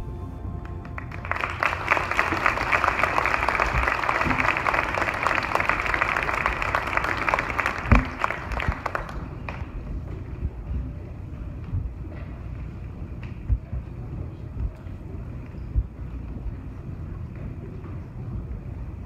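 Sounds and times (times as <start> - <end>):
audience applauding: 0.6 - 9.8.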